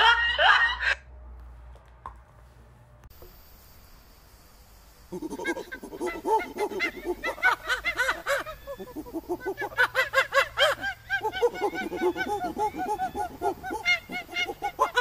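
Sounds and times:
monkeys squealing and cooing: 5.1s - 15.0s.

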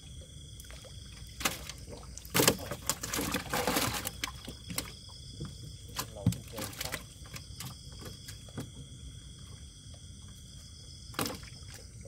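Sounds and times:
water splashing: 0.0s - 8.5s
water sloshing: 0.0s - 12.0s.

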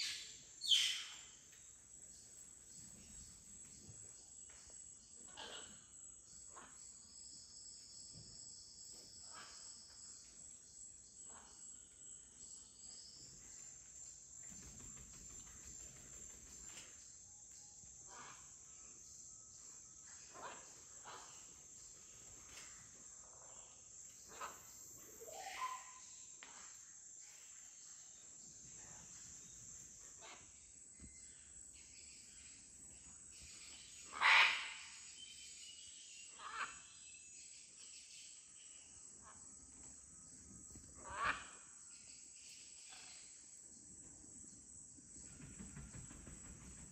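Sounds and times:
insects droning: 0.0s - 46.9s
animal calls: 34.1s - 35.0s.

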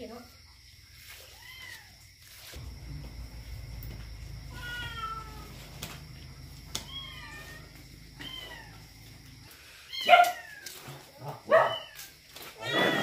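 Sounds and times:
steady low rumble: 2.6s - 8.2s
cat meowing: 4.3s - 5.8s, 6.7s - 8.9s.

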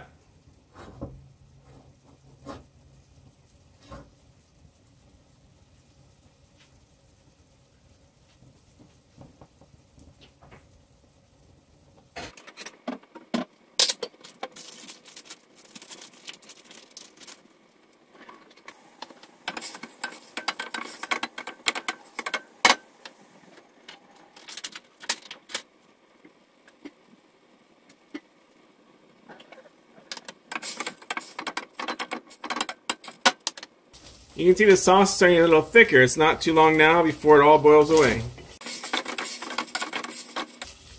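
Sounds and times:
wooden spoon scraping metal pot: 37.8s - 40.8s.

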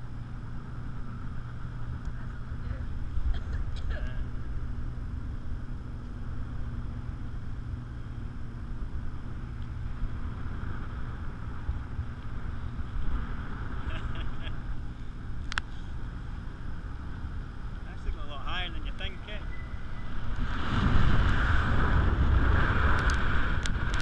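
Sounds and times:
wind buffeting microphone: 0.0s - 24.0s
light ticks: 15.4s - 15.7s.

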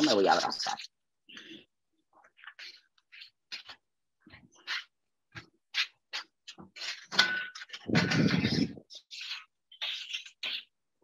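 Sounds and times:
utensils scraping and clicking: 2.2s - 10.8s
metal oven tray scraping: 7.0s - 8.8s.

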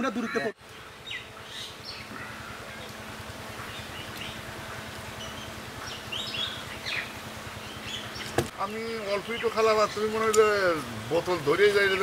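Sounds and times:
bird chirps: 0.2s - 8.4s.

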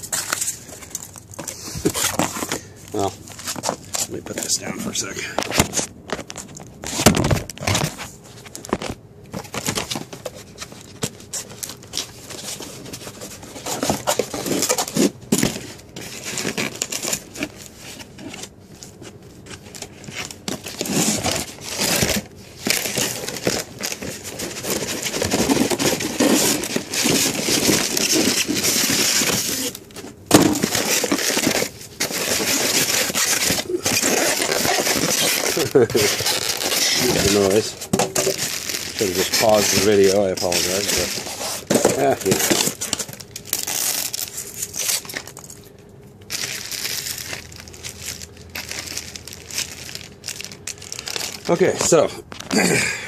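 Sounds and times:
crinkling and rustling: 0.0s - 52.6s.

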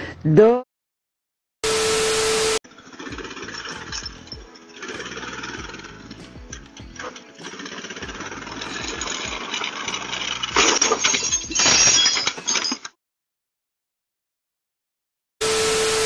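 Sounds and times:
loud clattering and rattling crash: 2.7s - 12.8s
atv engine running: 3.0s - 10.5s.

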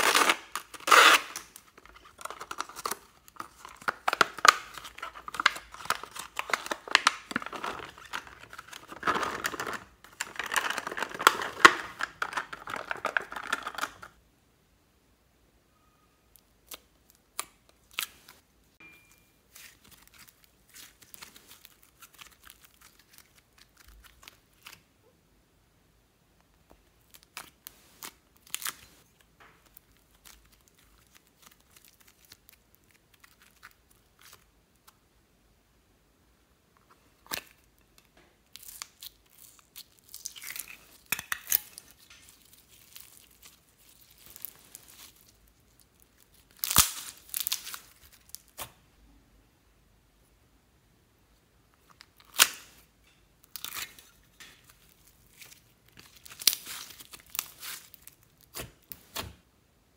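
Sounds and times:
slime squishing and crackling: 38.5s - 48.6s, 54.7s - 59.2s.

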